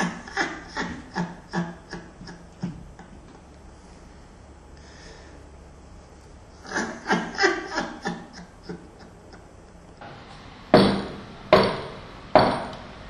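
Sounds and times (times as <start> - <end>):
person laughing: 0.0 - 3.3, 6.6 - 9.8
knocking on door: 10.8 - 12.7.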